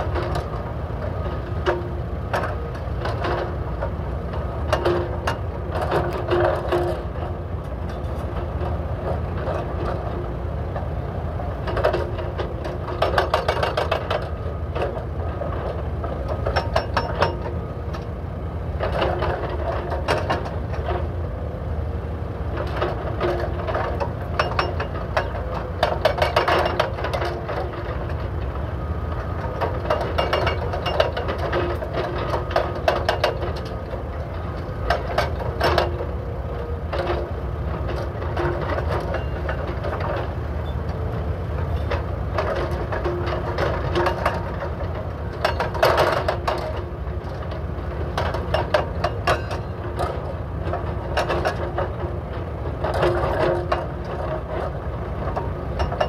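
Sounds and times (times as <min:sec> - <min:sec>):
diesel engines droning: 0:00.0 - 0:56.0
hydraulic breakers hammering asphalt: 0:29.4 - 0:40.2.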